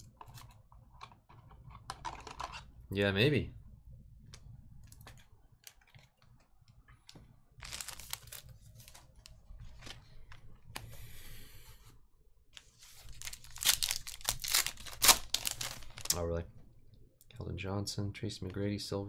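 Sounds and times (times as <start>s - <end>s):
foil wrapper crinkling and tearing: 7.6s - 9.3s, 12.6s - 16.2s.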